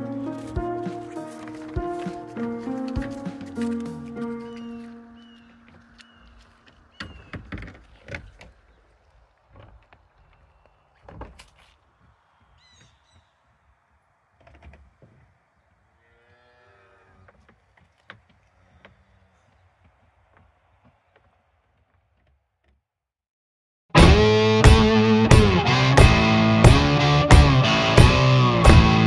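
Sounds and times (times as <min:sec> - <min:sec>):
footsteps in snow: 0:00.0 - 0:13.3
high chirp: 0:04.1 - 0:06.3.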